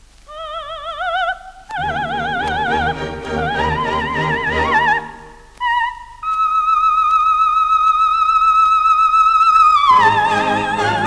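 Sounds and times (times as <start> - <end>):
soprano singing high notes: 1.7 - 6.2, 9.8 - 11.0
orchestra playing: 1.8 - 5.6, 9.9 - 11.0.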